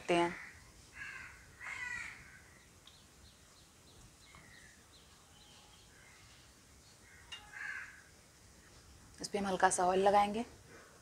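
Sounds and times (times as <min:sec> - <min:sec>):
crow cawing: 0:00.3 - 0:02.6, 0:07.0 - 0:08.1
faint high bird chirps: 0:02.5 - 0:07.6.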